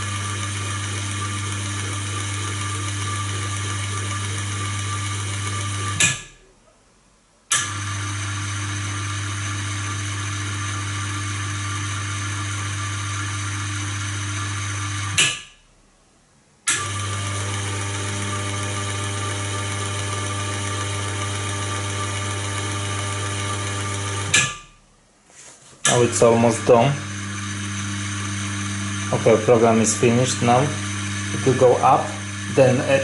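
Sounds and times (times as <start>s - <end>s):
electric motor humming: 0.0s - 6.2s, 16.7s - 24.4s, 25.8s - 33.0s.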